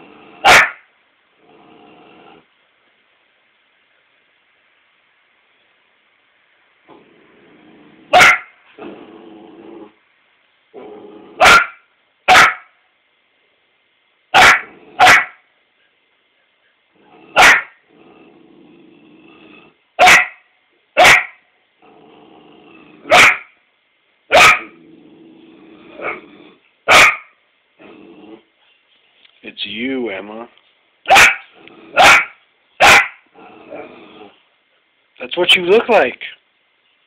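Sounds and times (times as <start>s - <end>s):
puppy growling: 0.0s - 0.7s, 1.3s - 2.5s, 6.8s - 10.0s, 10.7s - 11.6s, 14.5s - 15.1s, 16.9s - 19.8s, 21.8s - 23.2s, 24.6s - 26.7s, 27.8s - 28.6s, 31.4s - 32.4s, 33.2s - 34.5s
puppy barking: 0.4s - 0.8s, 8.1s - 8.6s, 11.4s - 12.7s, 14.3s - 15.4s, 17.3s - 17.8s, 20.0s - 20.4s, 21.0s - 21.4s, 23.1s - 23.6s, 24.3s - 24.7s, 26.9s - 27.3s, 31.1s - 33.2s.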